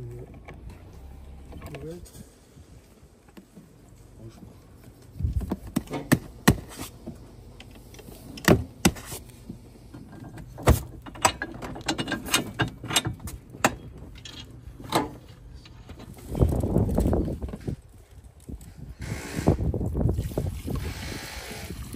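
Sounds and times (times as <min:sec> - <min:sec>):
metal bracket clicking and knocking: 0:10.2 - 0:16.1.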